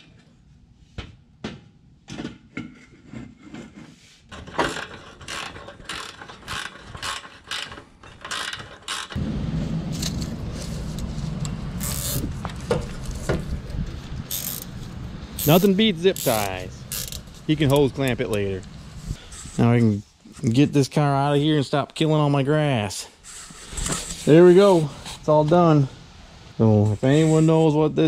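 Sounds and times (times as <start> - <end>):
ratchet wrench clicking: 11.8 - 12.3, 14.3 - 14.8, 15.4 - 18.3.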